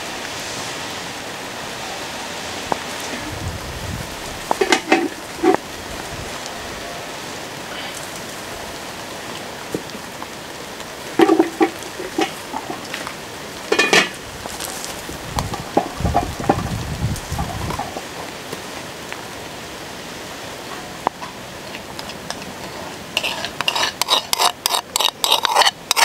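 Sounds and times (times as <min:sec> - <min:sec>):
pan sizzling: 0:03.8 - 0:06.6, 0:07.8 - 0:18.6, 0:20.6 - 0:26.0.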